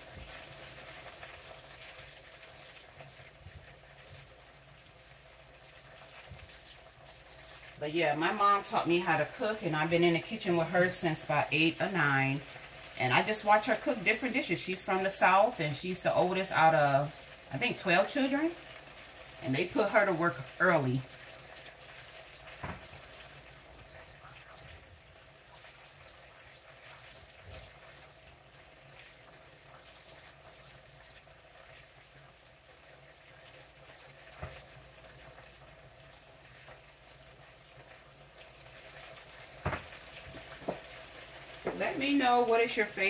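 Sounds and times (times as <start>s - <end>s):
oil sizzling in skillet: 0.0s - 43.0s
faint taps: 40.6s - 40.9s.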